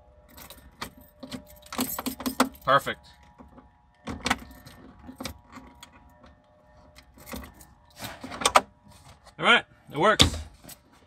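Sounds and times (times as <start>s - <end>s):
keys jangling on key ring: 0.2s - 3.4s.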